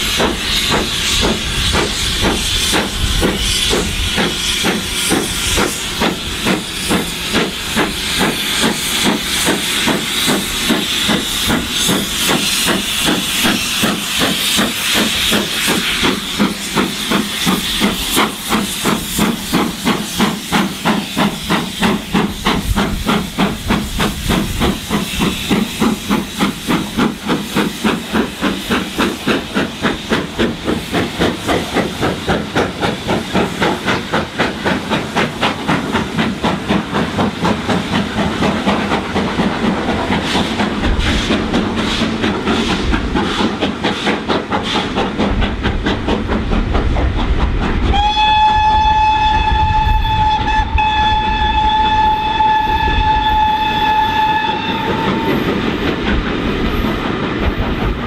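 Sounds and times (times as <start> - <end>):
steam locomotive chuffing: 0.0 - 58.0
steam whistle: 47.9 - 55.6.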